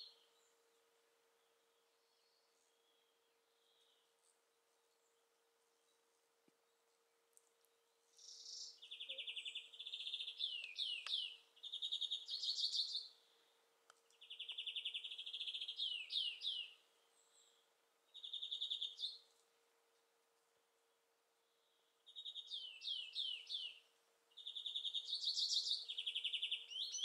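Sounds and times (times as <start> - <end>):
songbird trilling: 8.2 - 13.1, 14.2 - 16.8, 18.1 - 19.2, 22.1 - 27.0.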